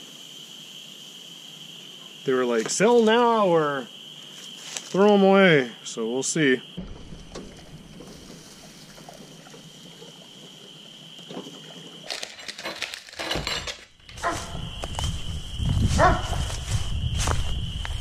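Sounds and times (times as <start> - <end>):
footsteps in dry leaves: 4.4 - 5.0, 14.2 - 18.0.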